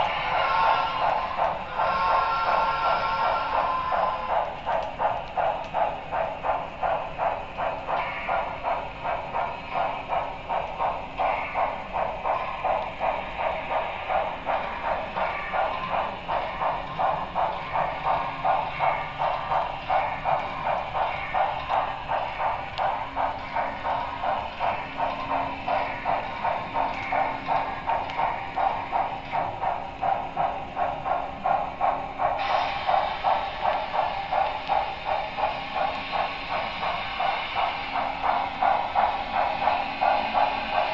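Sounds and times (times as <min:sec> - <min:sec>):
model steam locomotive exhaust chuffs: 0:00.0 - 0:40.9.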